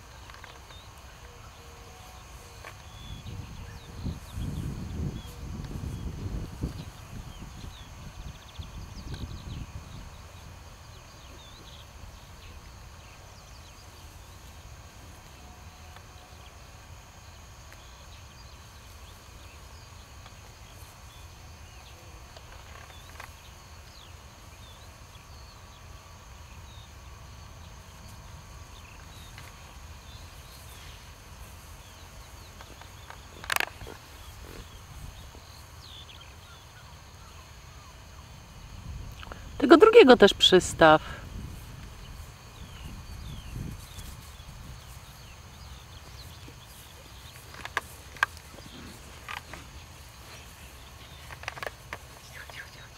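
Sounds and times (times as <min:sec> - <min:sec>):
bird chirps: 0:42.0 - 0:52.9.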